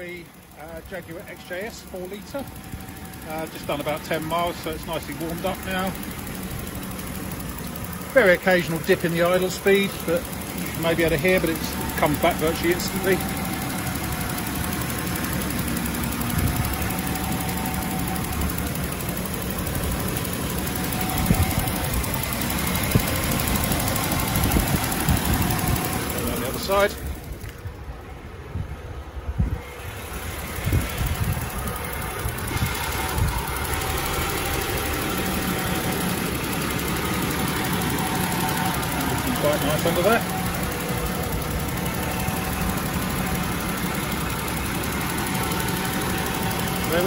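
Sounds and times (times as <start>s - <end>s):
car engine idling: 0.0s - 47.0s.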